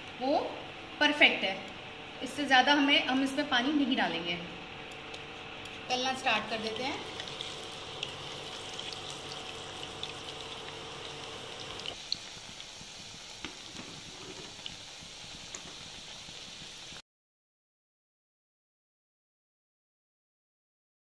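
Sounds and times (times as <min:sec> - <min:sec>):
batter sizzling in hot oil: 0:04.7 - 0:17.0
oil popping and crackling: 0:06.4 - 0:16.2.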